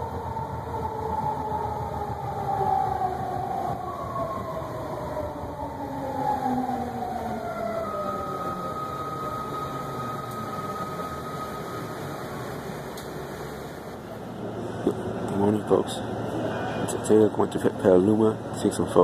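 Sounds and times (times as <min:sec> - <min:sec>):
train whine falling in pitch: 0:00.0 - 0:13.8
train running rumble: 0:00.0 - 0:18.8.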